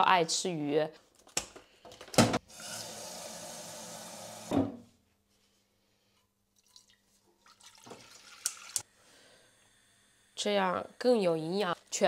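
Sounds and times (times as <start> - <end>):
tap running into jug: 7.5 - 8.8.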